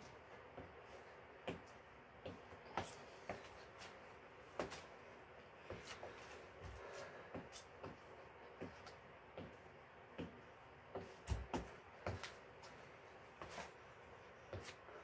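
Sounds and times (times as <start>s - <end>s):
feet and hands thumping on floor: 10.2s - 12.4s.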